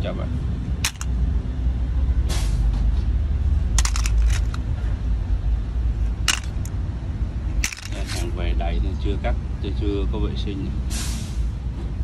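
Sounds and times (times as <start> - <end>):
plastic cases clicking and clattering: 0.8 - 1.1, 3.8 - 4.6, 6.2 - 6.7, 7.6 - 8.3.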